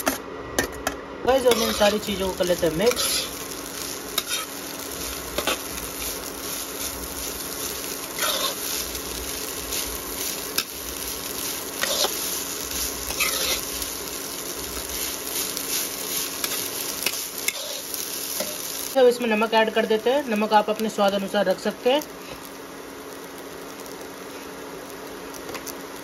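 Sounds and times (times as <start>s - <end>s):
light frying sizzle: 1.3s - 26.0s
spatula scraping metal pan: 1.5s - 2.0s, 2.9s - 3.3s, 8.2s - 8.6s, 13.1s - 13.6s.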